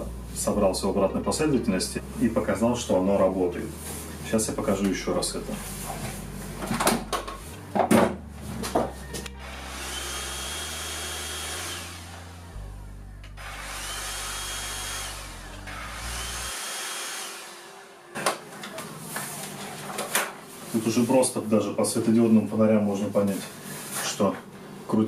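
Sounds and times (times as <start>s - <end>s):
stick vacuum running with whine: 8.7s - 20.3s.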